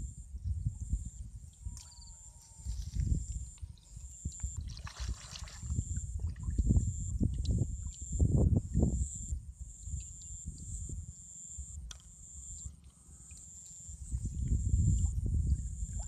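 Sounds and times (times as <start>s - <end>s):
insect chirring: 0.8s - 4.7s, 5.6s - 16.0s
hands splashing in water: 4.6s - 5.7s.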